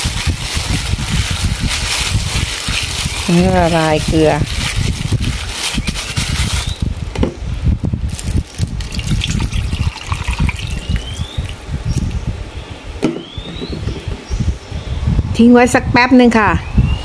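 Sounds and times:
water pouring into a bowl: 8.8 - 11.6.

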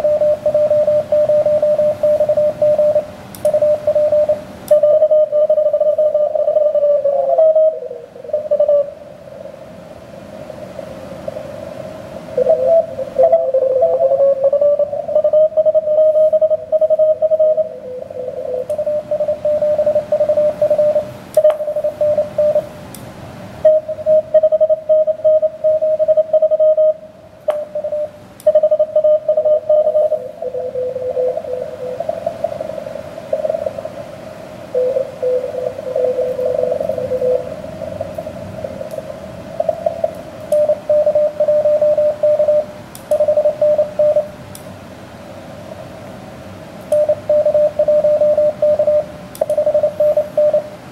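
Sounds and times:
morse code tones: 0.0 - 9.0, 12.4 - 22.7, 23.6 - 44.4, 46.9 - 50.8
radio band hiss: 0.0 - 22.8, 27.5 - 42.8
sharp clicks: 3.3 - 3.6, 40.1 - 40.7, 42.9 - 43.3, 49.3 - 49.7.

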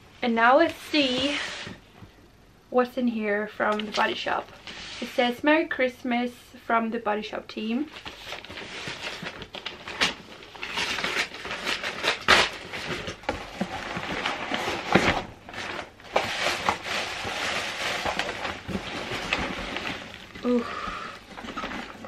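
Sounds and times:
plastic packing crinkling: 7.9 - 22.0
wrapping paper tearing: 8.0 - 22.0.

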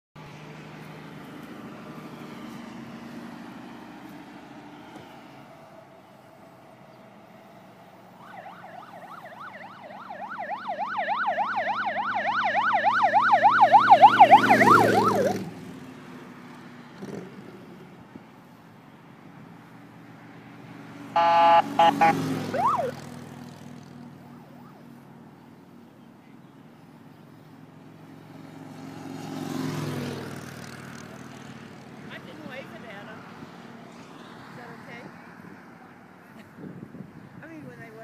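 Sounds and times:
highway traffic hum: 0.2 - 38.0
emergency siren yelping: 8.0 - 15.5, 21.2 - 23.0.

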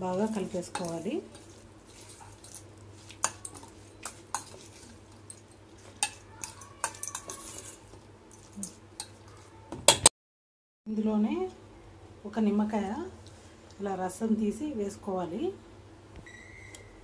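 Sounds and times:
metal spoon scraping a steel bowl: 0.2 - 9.1.

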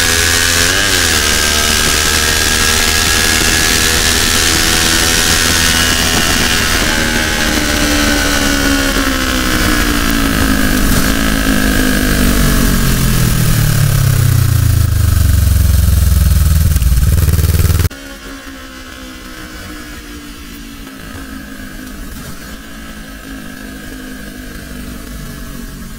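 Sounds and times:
motorcycle engine slowing: 0.0 - 25.9
wind rushing over microphone: 1.7 - 14.2.

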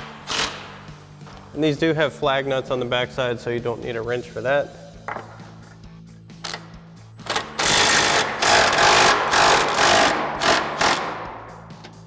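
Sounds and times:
impact wrench hammering: 7.2 - 12.0.

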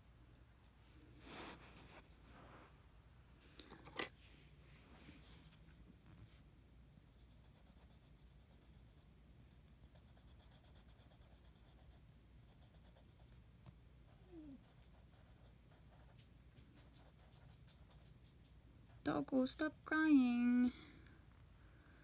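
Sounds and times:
pencil strokes scratching paper: 7.2 - 9.1, 9.8 - 13.4, 14.7 - 16.1, 16.8 - 18.1.

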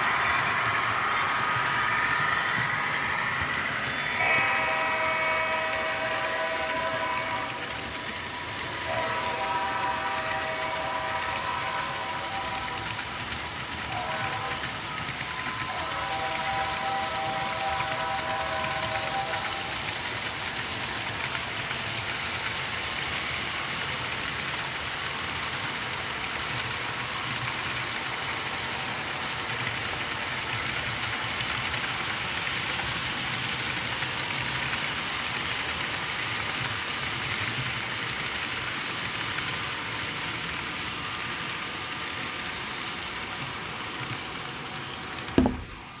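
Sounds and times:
model train wheels rattling on rails: 0.0 - 46.0
sharp knock: 45.4 - 45.8.

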